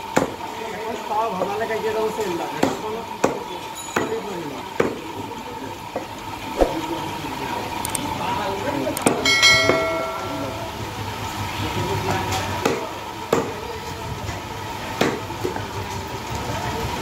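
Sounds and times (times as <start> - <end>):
steady background hum: 4.8 - 17.0
cleaver chopping on wooden block: 12.6 - 13.6.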